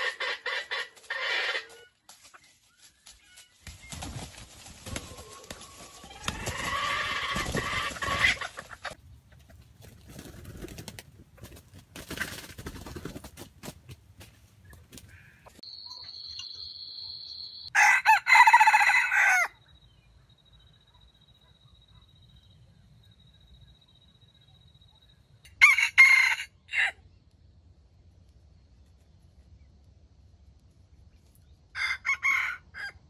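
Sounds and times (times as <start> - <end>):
rooster crowing: 17.7 - 19.6, 25.5 - 27.0, 31.7 - 33.0.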